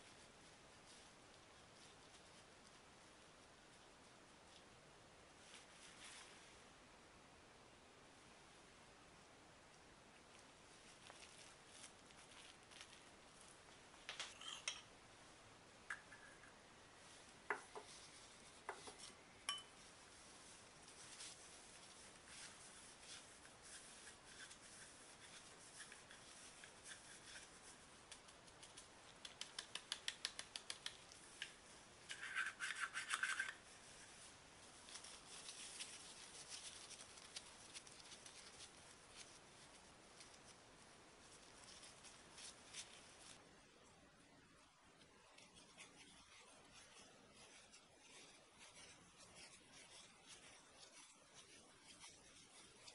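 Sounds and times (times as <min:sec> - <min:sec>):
rubbing: 0:45.4 - 0:52.9.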